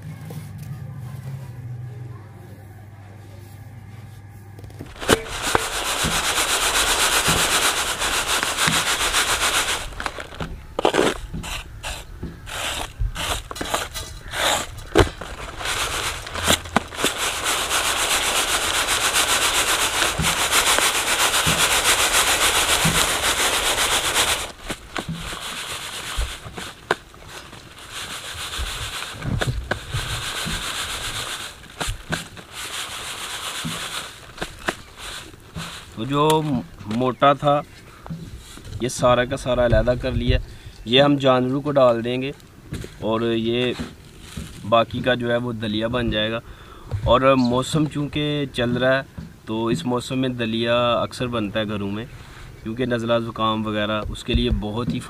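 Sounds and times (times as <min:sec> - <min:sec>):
grain rustling in reed tray: 0:04.8 - 0:37.5, 0:41.8 - 0:45.9.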